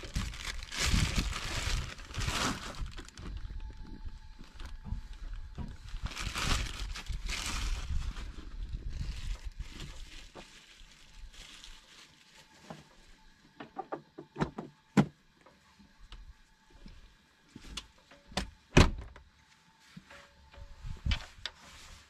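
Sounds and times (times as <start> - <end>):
wind rumbling on microphone: 0.0 - 10.4, 20.6 - 21.5
plastic bag rustling: 0.0 - 13.4.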